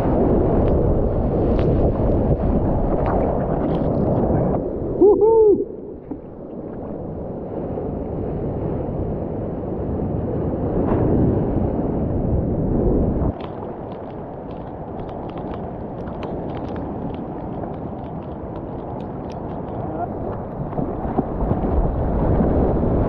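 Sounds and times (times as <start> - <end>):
water rushing around surfboard: 0.0 - 23.0
surfer hooting: 5.0 - 5.9
water sloshing and lapping: 5.9 - 7.4, 13.3 - 22.6.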